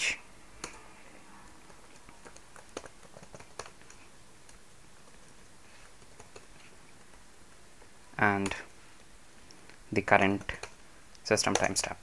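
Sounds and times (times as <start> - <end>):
typing on computer keyboard: 1.7 - 7.2, 11.4 - 11.8.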